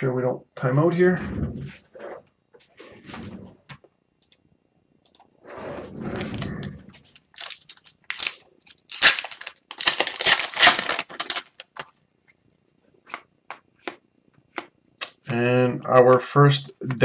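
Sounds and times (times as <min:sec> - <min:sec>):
foil crinkling and tearing: 0:07.1 - 0:11.9
foil pack rustling: 0:07.1 - 0:11.9.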